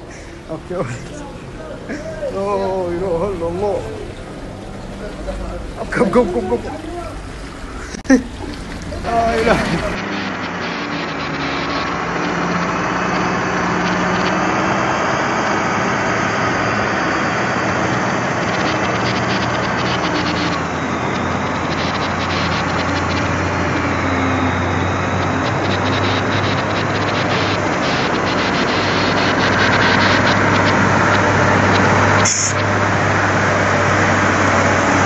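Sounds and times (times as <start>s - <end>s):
truck diesel engine running: 0.0s - 35.0s.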